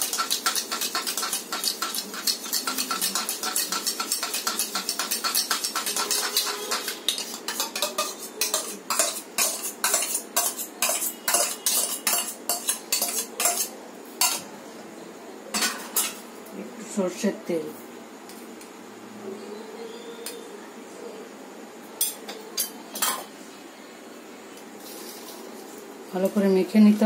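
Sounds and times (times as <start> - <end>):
metal spoon clinking in steel bowl: 0.0 - 14.4, 15.5 - 16.2
spoon scraping onto steel plate: 0.0 - 14.4.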